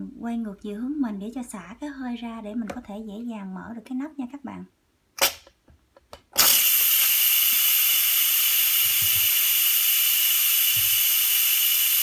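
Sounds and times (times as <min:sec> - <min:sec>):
steam venting hiss: 0:06.4 - 0:12.0.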